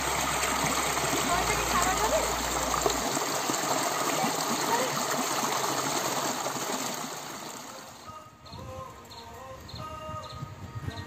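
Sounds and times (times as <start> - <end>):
stream rushing over rocks: 0.0 - 8.1.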